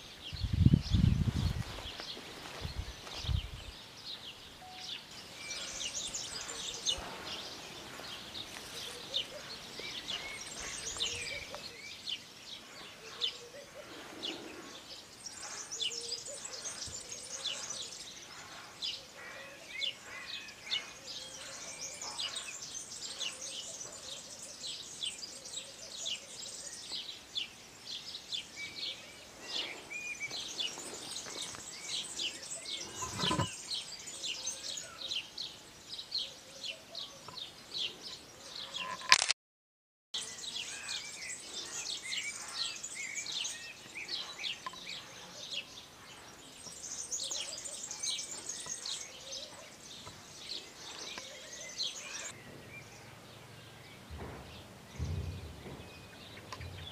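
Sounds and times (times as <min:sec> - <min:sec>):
small birds chirping: 0:00.0 - 0:39.2, 0:40.2 - 0:56.9
dull thump: 0:54.1 - 0:56.0.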